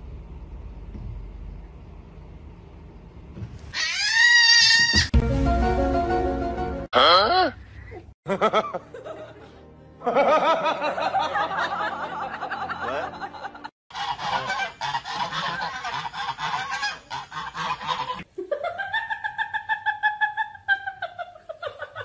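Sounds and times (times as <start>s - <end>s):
wavering animal cries: 3.7s - 5.1s
long rising and falling cry: 3.8s - 5.1s
geese honking: 13.9s - 18.2s.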